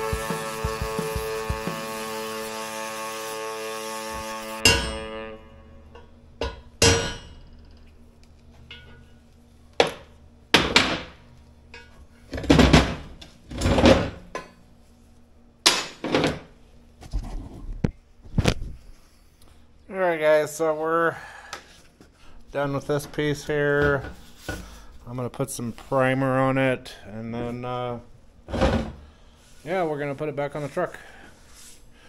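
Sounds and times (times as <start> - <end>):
angle grinder whining: 0.0 - 6.2
metal clanks and knocks: 5.9 - 7.9.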